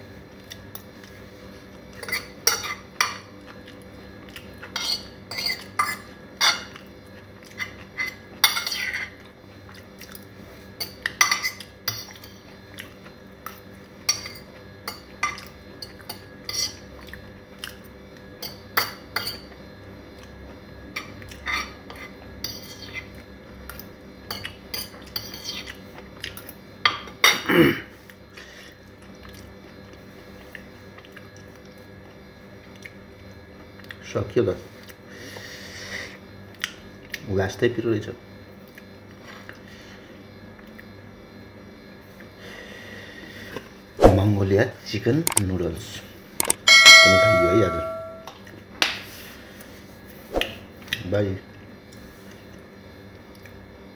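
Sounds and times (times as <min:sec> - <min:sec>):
fork scraping a ceramic plate: 0:04.8 - 0:06.6.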